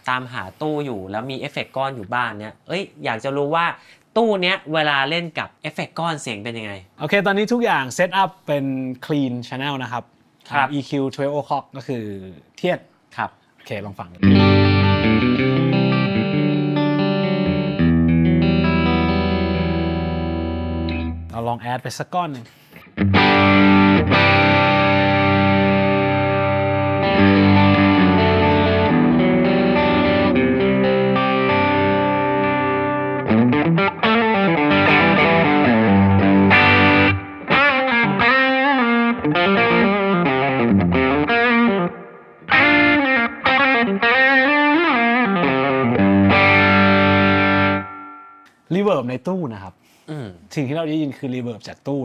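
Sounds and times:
clean electric guitar: 0:14.2 - 0:21.3, 0:22.7 - 0:48.5.

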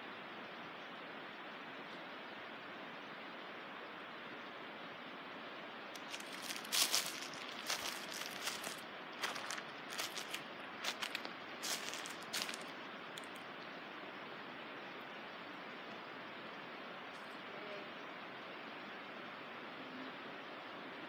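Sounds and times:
steady hiss: 0:04.1 - 0:14.5
rustling and crackling: 0:06.0 - 0:13.4.

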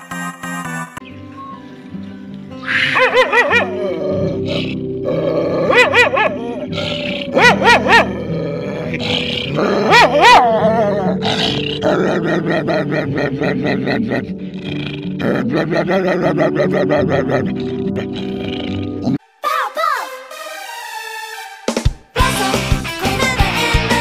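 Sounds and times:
dog howling with wobbling pitch: 0:02.8 - 0:04.4, 0:05.6 - 0:06.4, 0:07.4 - 0:08.3, 0:09.8 - 0:11.2
dog grumbling: 0:02.9 - 0:19.2.

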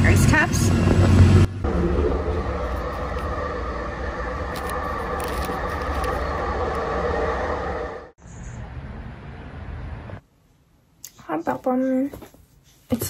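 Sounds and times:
transit vehicle rumble: 0:00.0 - 0:10.3.

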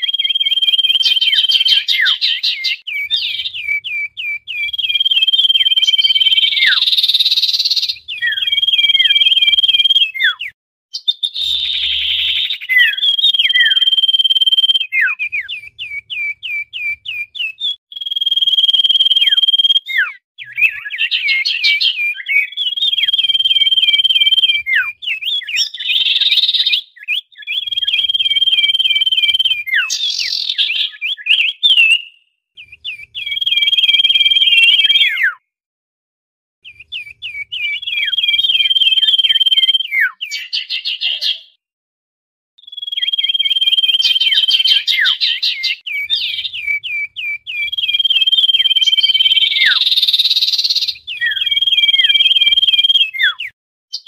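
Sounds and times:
bird high whistles: 0:00.0 - 0:35.4, 0:36.6 - 0:41.5, 0:42.6 - 0:54.0.

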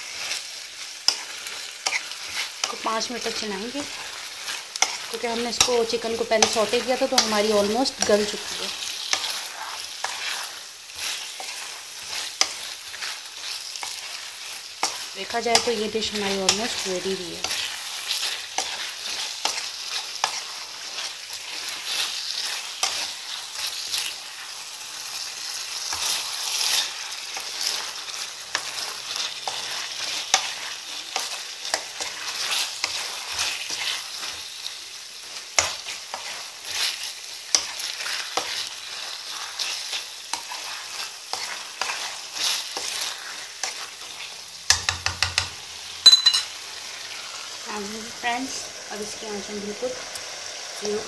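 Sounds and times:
sauce sizzling: 0:00.0 - 0:51.0
spatula scraping metal pan: 0:01.0 - 0:24.1.

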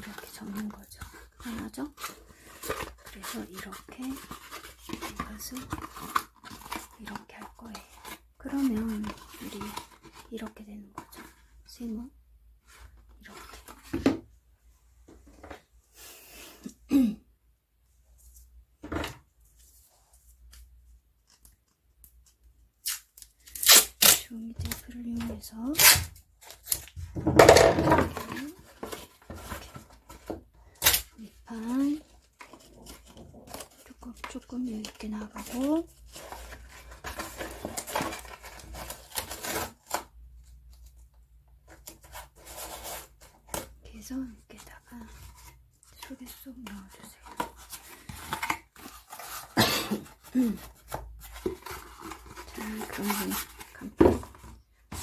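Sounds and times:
cardboard rustling and scraping: 0:00.0 - 0:11.5, 0:26.4 - 0:30.5, 0:31.5 - 0:40.1, 0:41.6 - 0:43.8, 0:44.9 - 0:55.0.

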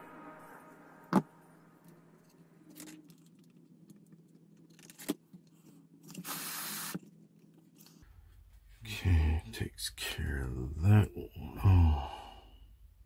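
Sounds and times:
short hiss: 0:06.2 - 0:07.0.

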